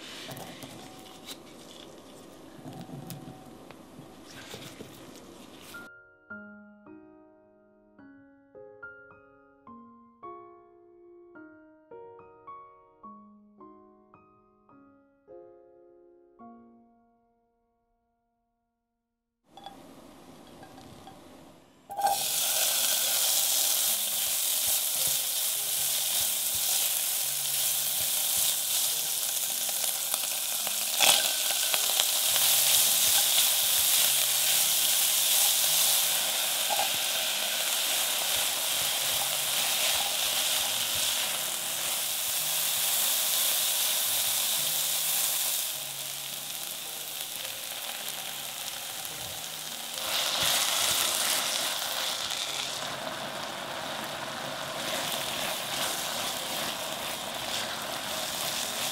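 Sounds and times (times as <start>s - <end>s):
food sizzling in a pan: 0.0s - 2.6s, 19.6s - 58.9s.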